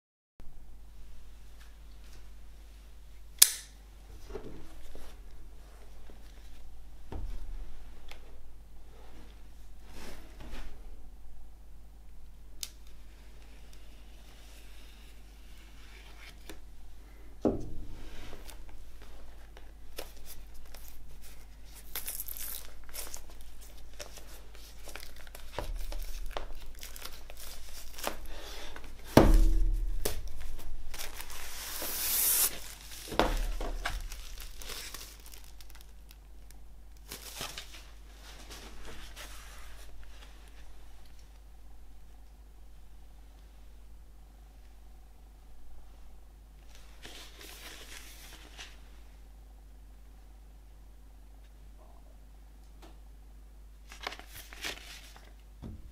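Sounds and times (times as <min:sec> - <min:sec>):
plastic wrap crinkling and tearing: 0:18.4 - 0:29.0, 0:29.7 - 0:38.0
dull thumps of record handling: 0:25.0 - 0:32.0, 0:32.6 - 0:35.6
knife slitting shrink-wrap: 0:31.0 - 0:35.9.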